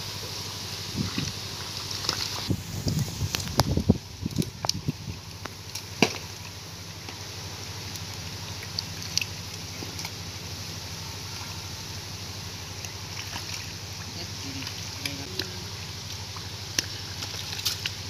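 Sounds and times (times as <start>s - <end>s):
low hum: 0.0s - 18.0s
hands splashing in muddy water: 16.7s - 18.0s.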